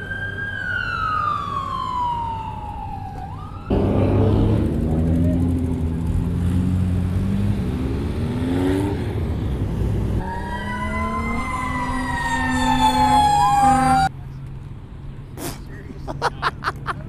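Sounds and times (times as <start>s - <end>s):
emergency siren wailing: 0.0s - 4.8s, 10.2s - 14.1s
car engines revving: 3.6s - 17.0s.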